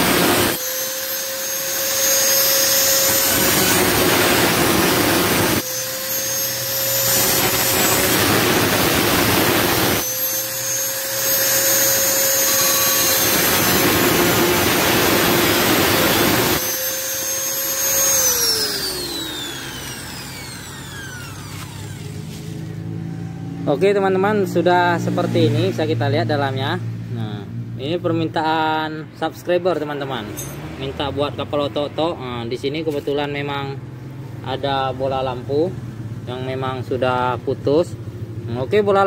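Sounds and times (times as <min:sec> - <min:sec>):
angle grinder cutting metal can: 0:00.0 - 0:22.8
grinder disc spinning down: 0:00.0 - 0:22.9.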